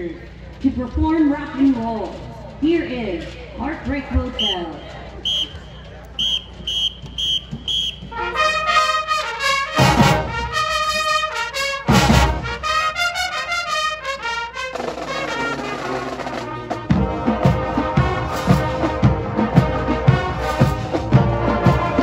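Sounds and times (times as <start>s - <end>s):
marching band playing: 3.8s - 22.0s
brass section chords: 6.2s - 22.0s
drum and cymbal hits: 14.8s - 22.0s.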